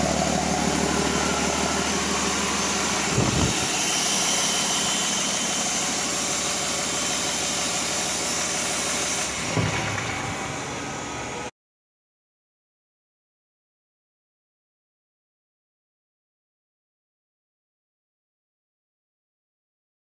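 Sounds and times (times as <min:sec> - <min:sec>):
diesel engine running: 0:00.0 - 0:11.5
low thump: 0:09.5 - 0:10.6.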